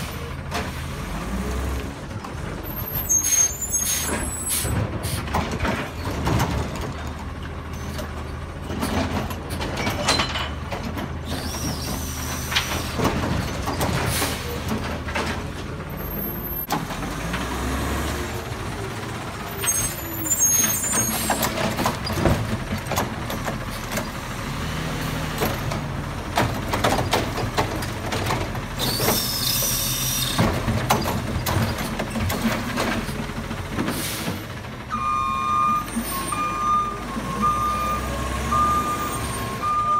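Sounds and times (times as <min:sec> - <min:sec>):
diesel truck engine revving: 0:00.0 - 0:05.4, 0:15.8 - 0:39.9
knocks and clanks: 0:04.1 - 0:15.8, 0:20.6 - 0:24.2, 0:25.4 - 0:29.2, 0:30.3 - 0:34.6.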